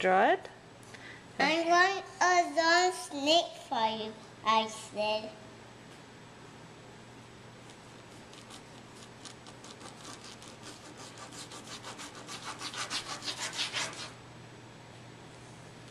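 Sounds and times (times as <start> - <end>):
pencil scribbling on paper: 8.3 - 14.2.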